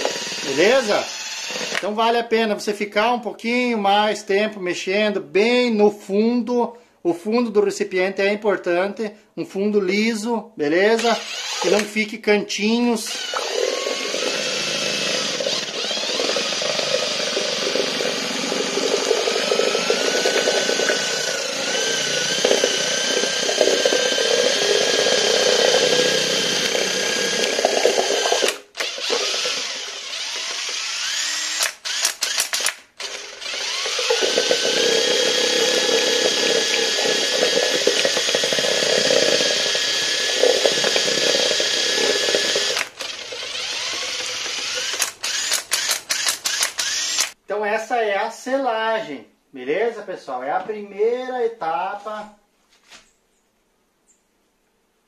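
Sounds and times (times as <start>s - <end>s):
cordless drill motor whine: 0.0s - 1.9s, 11.0s - 11.9s, 13.1s - 47.4s.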